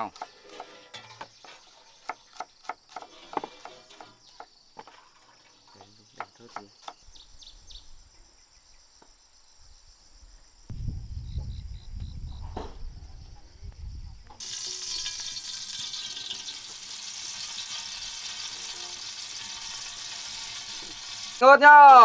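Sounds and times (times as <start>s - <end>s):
faint insect buzz: 1.5s - 14.8s
food sizzling in hot oil: 14.4s - 22.0s.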